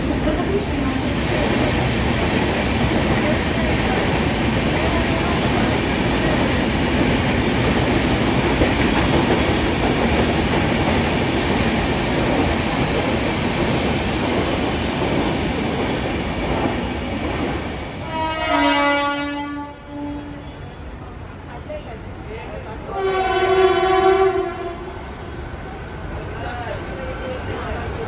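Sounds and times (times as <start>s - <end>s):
train rolling past: 0.0s - 28.0s
locomotive air horn: 18.0s - 20.6s, 23.0s - 24.9s.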